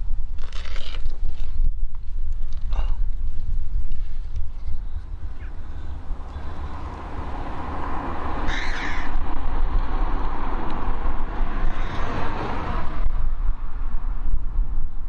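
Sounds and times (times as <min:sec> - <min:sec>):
wind rumbling on microphone: 0:00.0 - 0:15.0
bird calling: 0:04.5 - 0:09.2.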